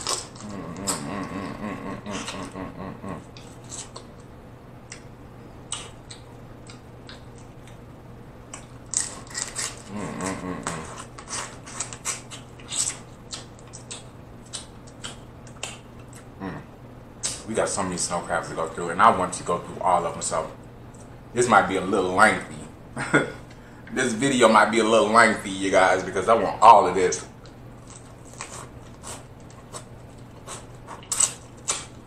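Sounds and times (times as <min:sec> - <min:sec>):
low drawn-out hum: 0:00.0 - 0:32.0
wet chewing and smacking: 0:05.7 - 0:07.8, 0:10.6 - 0:16.3
crab shells cracking: 0:08.5 - 0:09.9, 0:31.0 - 0:32.0.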